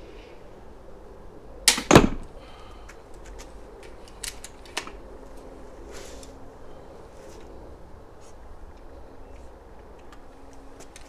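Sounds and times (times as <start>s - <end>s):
crossbow string snapping: 1.7s - 2.1s
bolt striking target: 1.7s - 2.3s.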